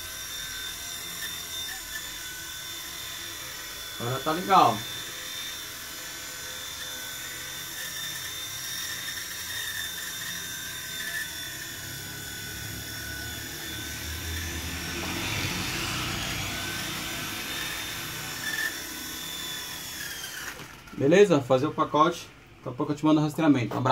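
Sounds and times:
toy helicopter motor whine: 0.0s - 23.2s
low rotor hum: 11.6s - 23.1s.

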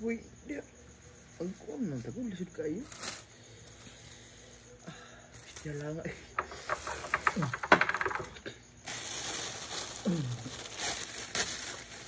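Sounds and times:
plastic bag rustling: 6.4s - 12.0s.

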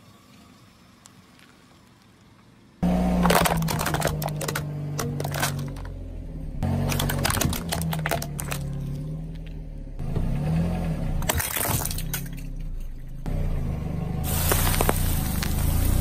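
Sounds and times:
car engine humming low: 0.0s - 11.3s, 11.9s - 16.0s
tyre crushing cracking plastic: 3.1s - 5.9s, 6.8s - 9.0s, 14.5s - 15.5s.

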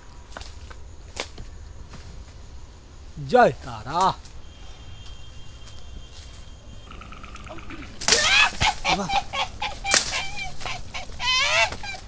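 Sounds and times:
faint steady tone: 4.0s - 10.9s
loud animal calls falling in pitch: 4.5s - 12.0s.

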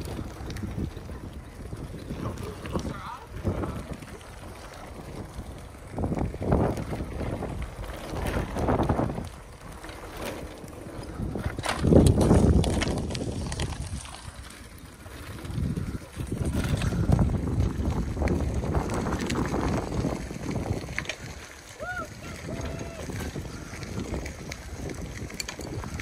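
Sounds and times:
wind buffeting microphone: 0.0s - 26.0s
sharp clicks and rattles: 23.2s - 26.0s.

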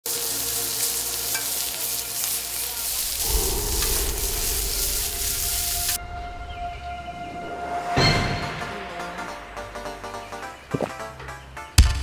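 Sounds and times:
meat sizzling on a grill: 0.0s - 6.0s
wood fire crackling and hissing: 0.0s - 6.5s.

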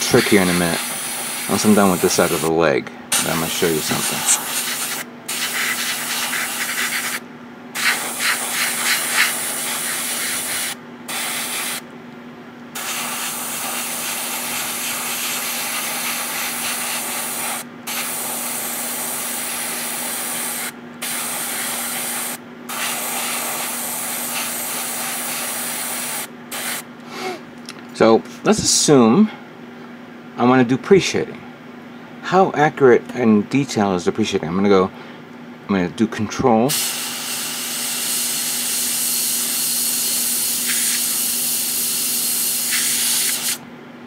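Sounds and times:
airbrush spraying hiss: 0.0s - 2.5s, 3.1s - 7.2s, 7.8s - 11.8s, 12.8s - 26.8s, 36.7s - 43.6s
steady low hum: 0.0s - 44.0s.

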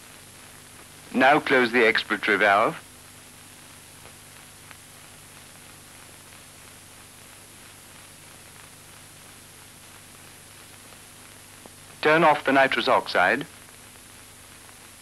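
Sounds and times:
film soundtrack hiss and hum: 0.0s - 15.0s
faint ticks: 3.6s - 12.0s.

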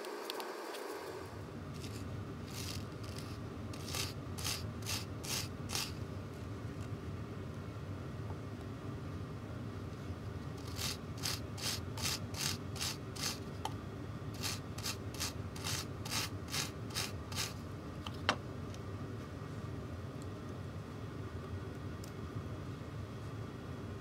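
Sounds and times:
wire brush scrubbing: 1.8s - 6.0s, 10.6s - 13.4s, 14.4s - 17.6s.

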